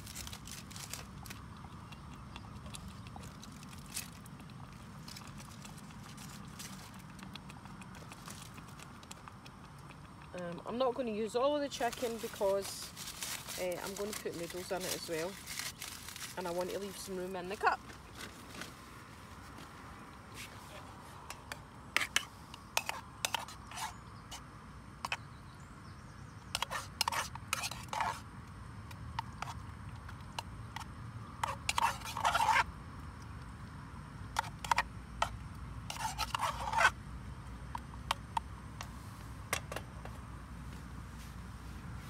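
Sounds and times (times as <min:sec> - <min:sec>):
metal spoon scraping metal cup: 0:21.3 - 0:24.0, 0:26.6 - 0:28.2, 0:31.4 - 0:32.7, 0:35.9 - 0:37.0.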